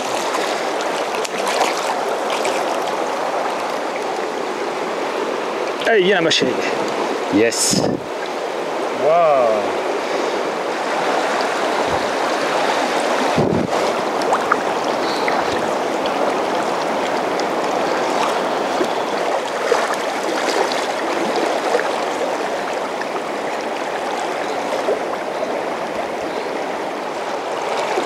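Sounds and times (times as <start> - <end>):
small water splashes: 0.0 - 4.7, 10.7 - 26.1, 27.1 - 28.0
river rushing over rapids: 0.0 - 28.0.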